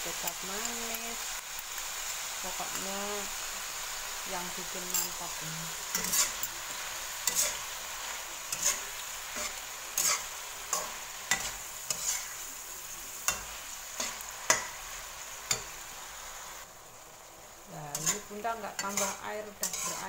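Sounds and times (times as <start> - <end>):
food sizzling in a wok: 0.0 - 20.0
metal spatula scraping a pan: 4.8 - 12.6, 13.2 - 14.9, 17.9 - 20.0.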